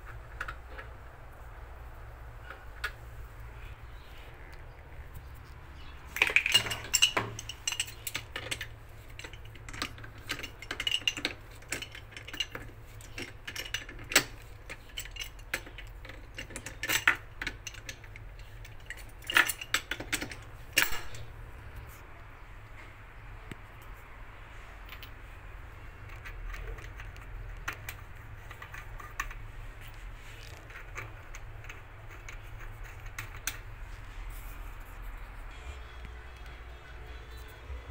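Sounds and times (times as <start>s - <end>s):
wrench clinking on metal pipe: 6.2s - 21.3s.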